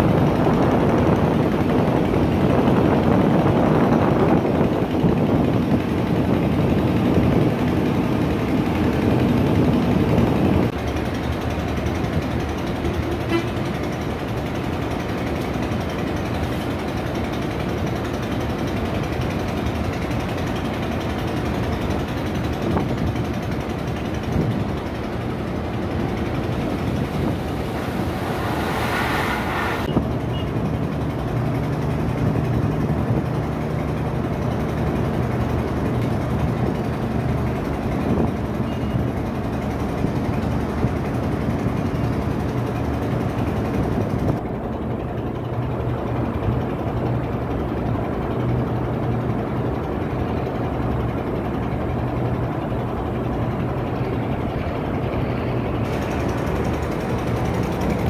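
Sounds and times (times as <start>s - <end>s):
ship diesel engine drone: 0.0s - 58.0s
wind and water hiss: 21.0s - 30.2s.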